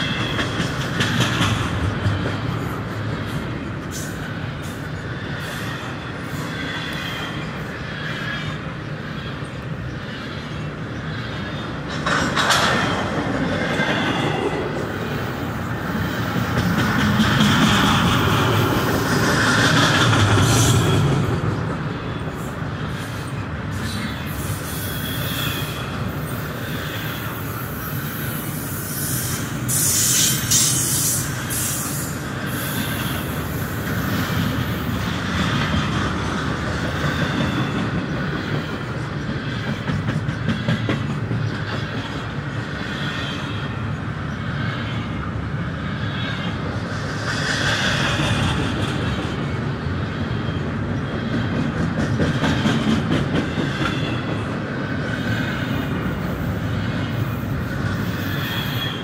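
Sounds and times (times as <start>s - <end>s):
clicking over rail joints: 0.0s - 2.7s, 11.8s - 14.0s
train wheels rumbling on rail: 0.0s - 59.0s
high-pitched wheel squeal: 23.8s - 25.9s, 58.0s - 59.0s.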